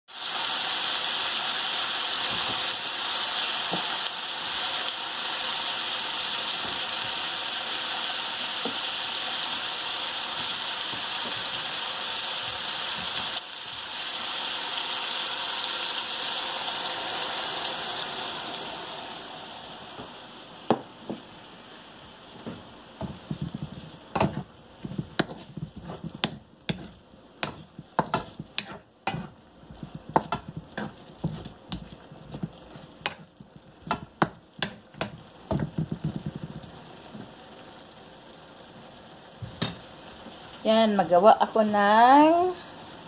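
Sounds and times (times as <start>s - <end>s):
meat sizzling in oil: 0.1s - 43.0s
oil popping: 22.4s - 37.4s.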